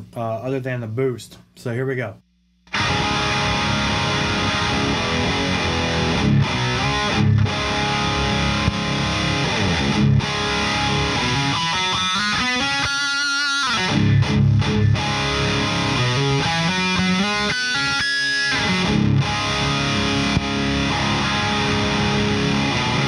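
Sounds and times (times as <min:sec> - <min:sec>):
distorted electric guitar riffs: 0:02.6 - 0:23.0.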